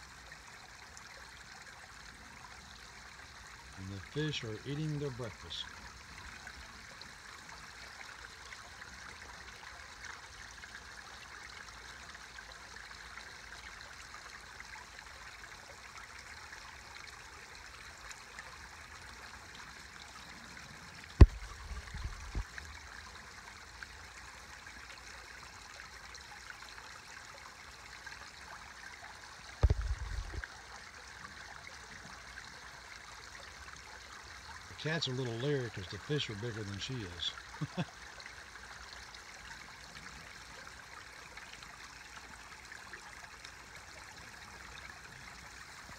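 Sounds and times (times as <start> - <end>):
waterfall trickling and splashing: 0.0 - 45.9
low thumps: 29.6 - 30.4.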